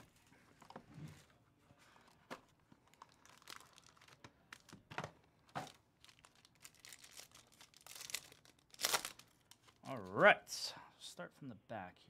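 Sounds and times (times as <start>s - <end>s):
foil pack crackling: 2.9s - 4.7s, 6.0s - 9.5s.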